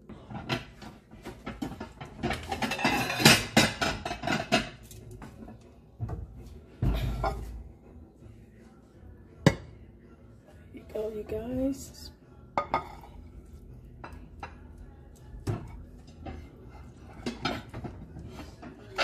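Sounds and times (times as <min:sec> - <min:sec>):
dishes and utensils clattering: 0:00.0 - 0:08.0, 0:12.5 - 0:19.0.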